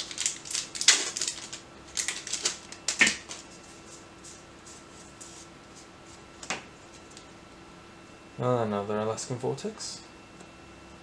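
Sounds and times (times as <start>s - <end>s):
foil wrapper crinkling: 0.0s - 3.5s.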